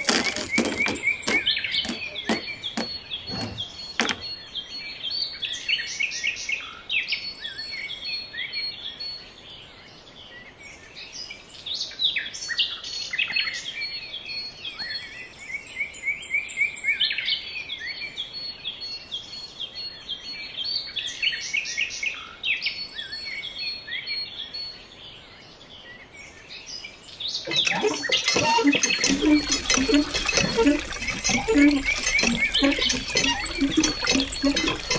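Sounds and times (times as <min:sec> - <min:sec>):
birds chirping: 0:00.0 - 0:04.8, 0:27.3 - 0:34.9.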